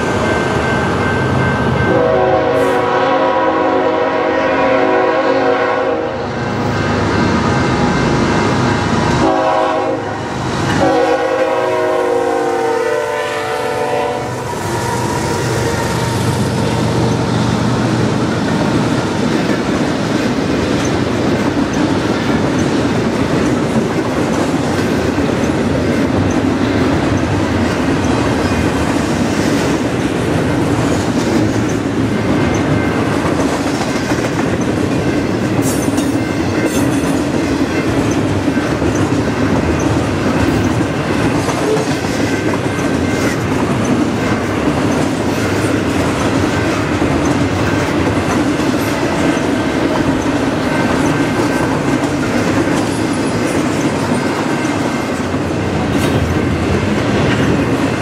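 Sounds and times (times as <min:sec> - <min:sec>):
locomotive horn blasts: 0:01.9 - 0:06.2, 0:09.2 - 0:14.6
freight train wheels clattering: 0:06.4 - 0:58.0.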